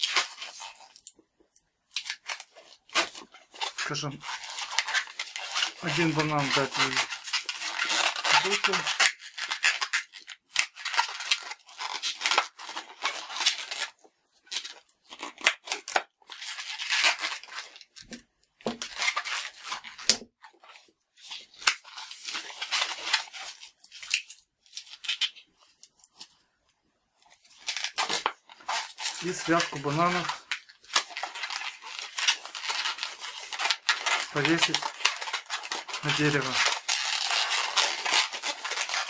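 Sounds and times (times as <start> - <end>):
balloon squeaking and rubbing: 2.2 - 13.9, 14.5 - 20.2, 27.5 - 39.0.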